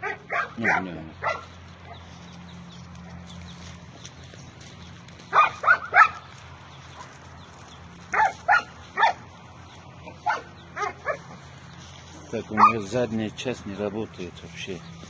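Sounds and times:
dog yelping: 0.0 - 1.5, 5.3 - 6.3, 8.1 - 9.3, 10.1 - 11.4, 12.6 - 12.9.

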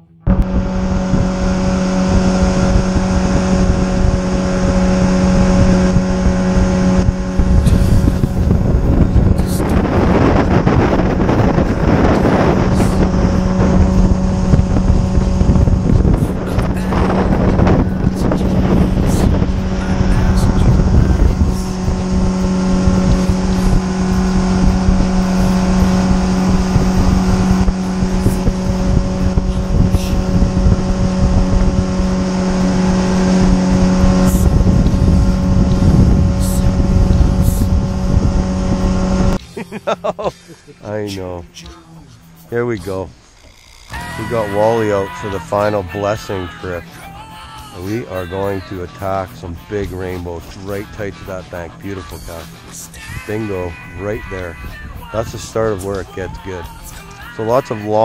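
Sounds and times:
boat motor running: 0.0 - 58.0
rushing wind and water: 0.3 - 39.4, 52.5 - 58.0.

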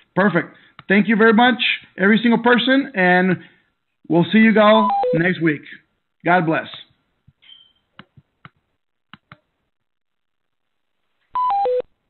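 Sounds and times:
high beep: 4.8 - 5.3.

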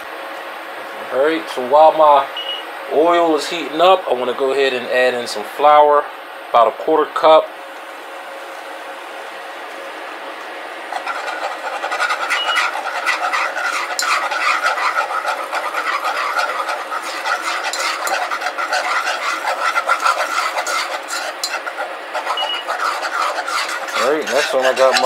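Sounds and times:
whisk scraping a saucepan: 10.8 - 25.0.

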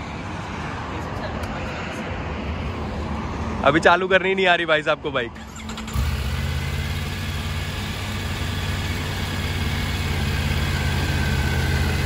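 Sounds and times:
motorcycle engine idling: 5.4 - 12.0.

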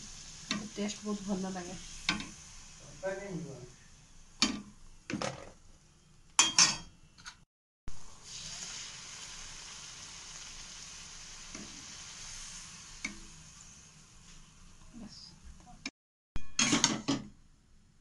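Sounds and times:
deep-frying sizzle in hot oil: 0.0 - 6.3, 7.9 - 15.8
metal spatula clanking on pot: 6.4 - 6.9, 16.4 - 17.2.

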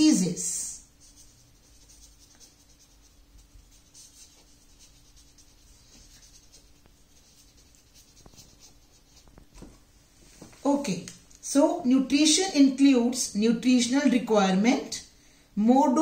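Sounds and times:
marker scratching on paper: 0.0 - 9.6
faint steady hum: 0.0 - 16.0.

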